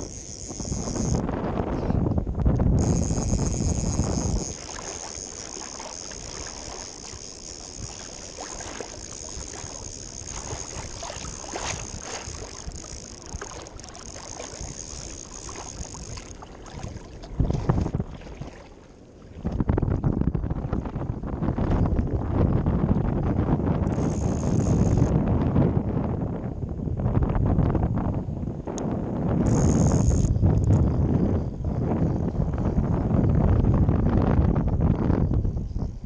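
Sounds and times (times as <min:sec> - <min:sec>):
wind buffeting microphone: 0:00.0 - 0:36.0
small waves lapping: 0:02.8 - 0:19.6.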